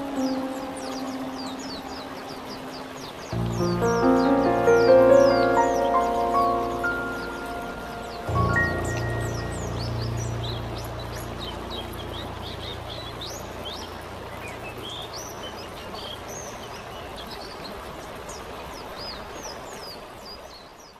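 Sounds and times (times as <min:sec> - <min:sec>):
held music chord: 0:00.0 - 0:15.5
birds chirping: 0:00.0 - 0:20.9
falling water rushing: 0:00.0 - 0:20.9.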